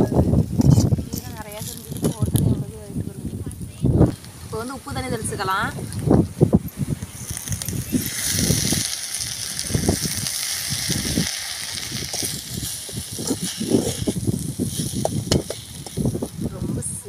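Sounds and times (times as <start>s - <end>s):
leaves sizzling in a pan: 0.0s - 17.0s
metal spoon scraping pan: 11.4s - 16.1s.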